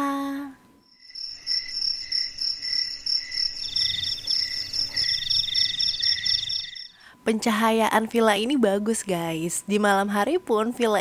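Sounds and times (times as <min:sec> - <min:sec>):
high insect trill: 0:00.8 - 0:07.1
crickets chirping: 0:00.8 - 0:07.2.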